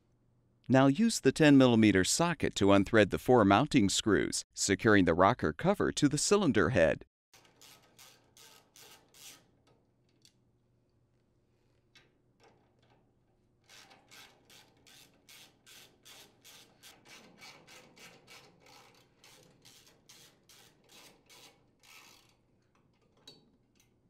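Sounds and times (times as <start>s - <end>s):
ratchet wrench clicking: 7.4s - 9.4s, 13.7s - 22.4s.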